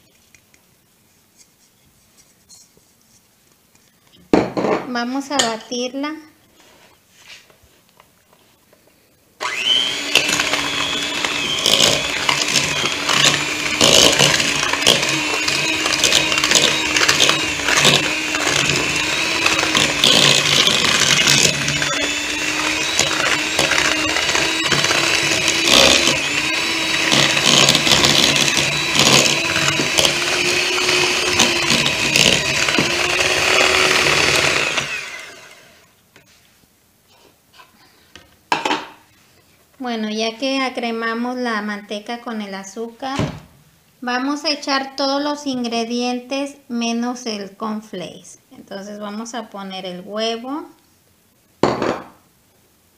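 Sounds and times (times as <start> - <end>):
electric hand mixer running: 9.4 - 35.9.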